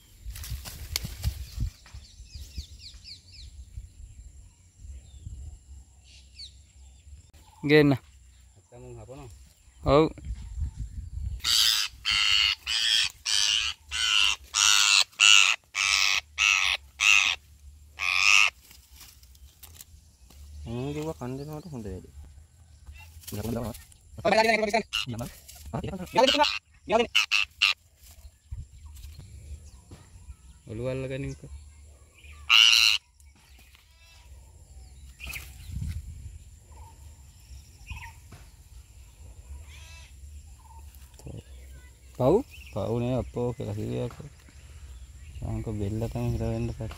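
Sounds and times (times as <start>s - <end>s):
parakeet screeching: 11.4s - 17.4s, 18.0s - 18.6s, 26.2s - 27.8s, 32.4s - 33.0s.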